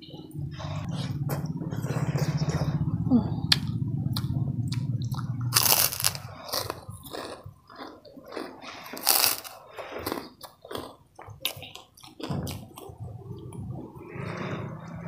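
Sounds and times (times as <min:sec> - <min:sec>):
crackers crunching while chewed: 0:03.5 - 0:13.5.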